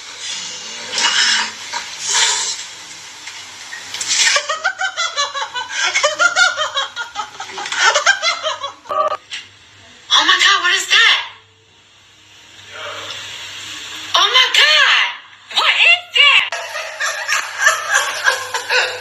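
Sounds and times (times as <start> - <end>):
cat hissing: 0.1 - 2.6
person laughing: 4.3 - 9.2, 16.6 - 19.0.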